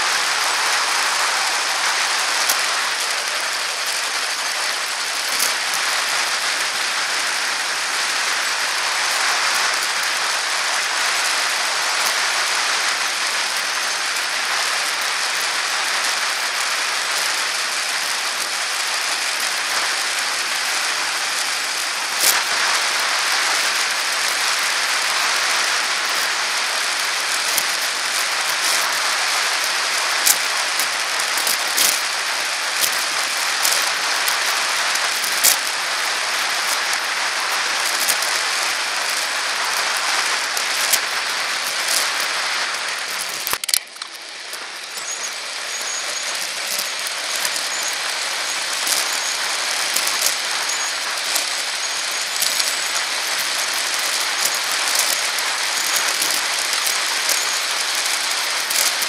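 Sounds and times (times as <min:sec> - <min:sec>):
bicycle tyre and wind hiss: 0:00.0 - 0:59.0
clicks and knocks from bumps: 0:27.0 - 0:59.0.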